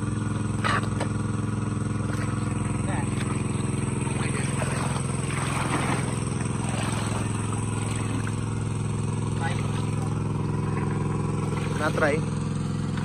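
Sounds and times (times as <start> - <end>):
engine-driven water pump running: 0.0 - 13.0.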